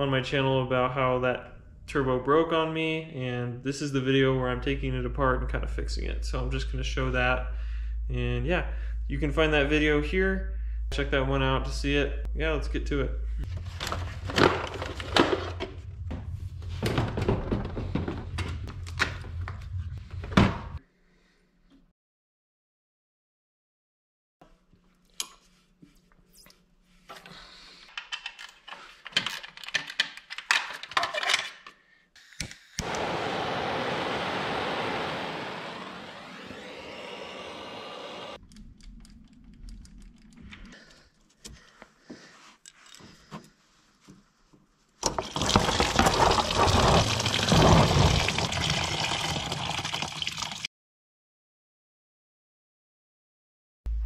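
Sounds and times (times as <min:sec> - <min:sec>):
liquid pouring into pan: 0:45.2 - 0:50.7.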